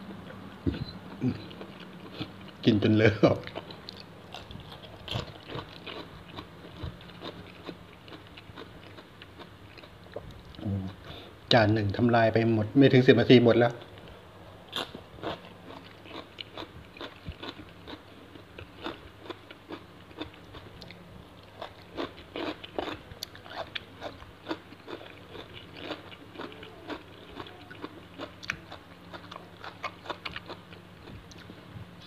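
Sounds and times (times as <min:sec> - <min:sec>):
faint steady hum: 0:00.0 - 0:32.0
crunchy biting and chewing: 0:03.4 - 0:11.0, 0:14.7 - 0:31.6.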